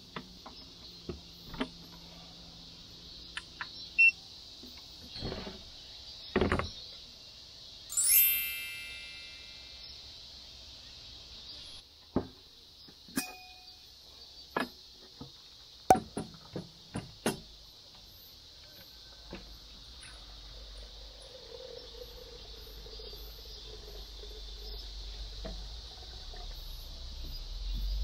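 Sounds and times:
steady high hiss: 0:00.0 - 0:28.0
ringing ding: 0:07.9 - 0:09.8, 0:13.2 - 0:13.8.

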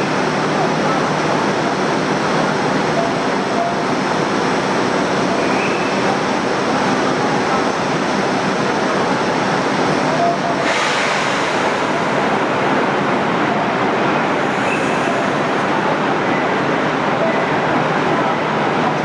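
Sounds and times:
electric train equipment running: 0:00.0 - 0:17.2
platform murmur: 0:00.0 - 0:19.0
loud hiss: 0:10.6 - 0:13.0.

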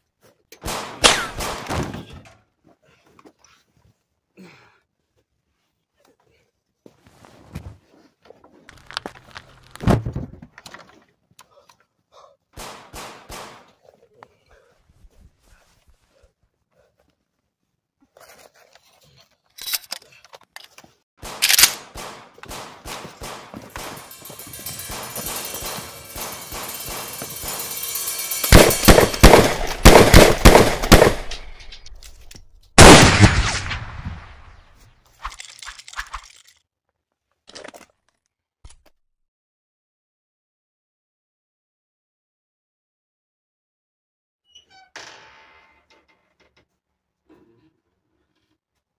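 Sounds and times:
rifle gunshots ringing: 0:00.6 - 0:01.9, 0:28.4 - 0:31.7, 0:32.8 - 0:34.6
heavy breathing: 0:13.9 - 0:17.2.

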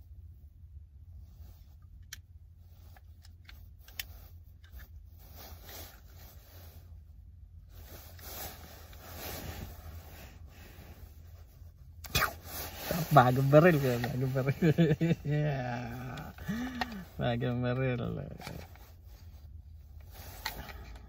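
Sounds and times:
low steady hum: 0:00.0 - 0:21.0
nylon jacket rustling: 0:07.7 - 0:17.2.

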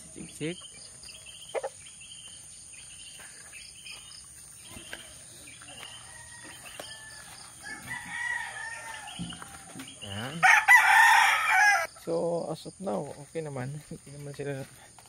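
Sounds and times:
small birds chirping: 0:00.0 - 0:10.5
insects droning: 0:00.0 - 0:15.0
rooster crowing: 0:05.8 - 0:11.9.

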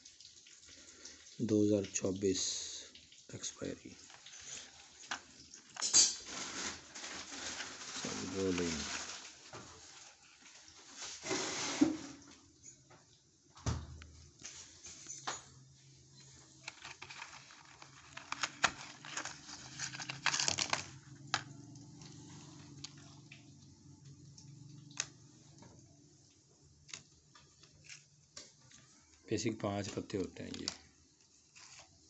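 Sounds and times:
cardboard carton rustling: 0:06.2 - 0:11.8, 0:16.5 - 0:21.1.

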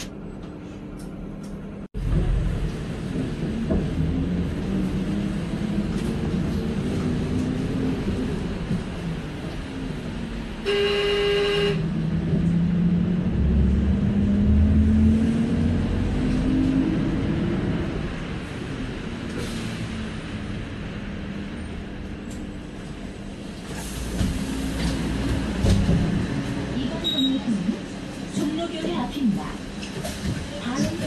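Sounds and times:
bus engine drone: 0:00.0 - 0:31.0
road noise rumble: 0:00.0 - 0:31.0
vehicle horn: 0:10.6 - 0:11.9.

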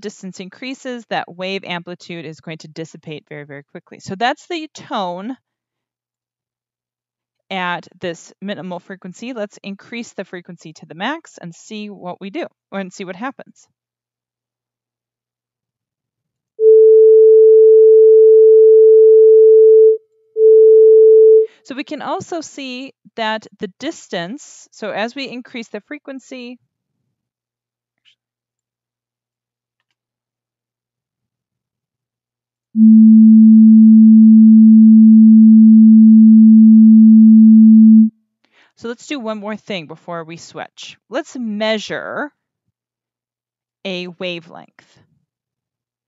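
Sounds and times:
steady electronic tone: 0:32.8 - 0:38.1.

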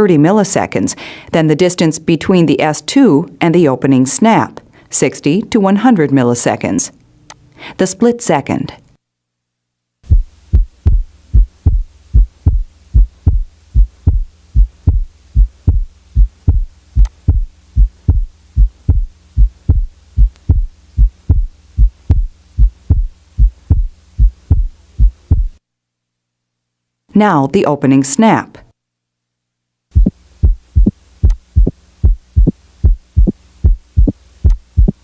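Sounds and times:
heart beating: 0:10.0 - 0:25.6, 0:29.9 - 0:35.0.

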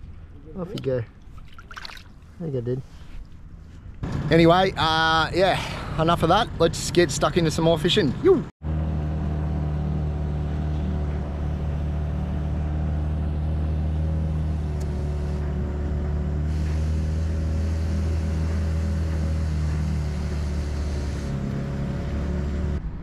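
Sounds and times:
outboard motor running: 0:09.4 - 0:22.6.

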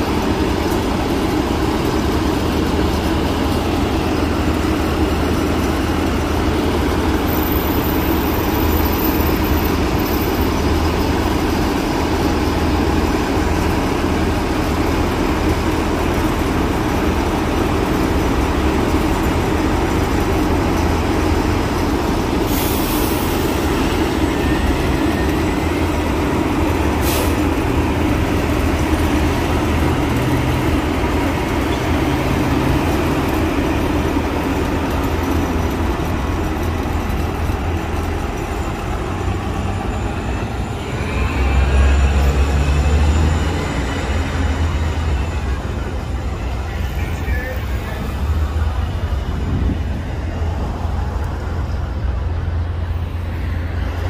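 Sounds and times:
bus engines idling: 0:00.0 - 0:54.0
street traffic: 0:00.0 - 0:54.0
air brake hiss: 0:22.4 - 0:23.7, 0:27.0 - 0:27.5.

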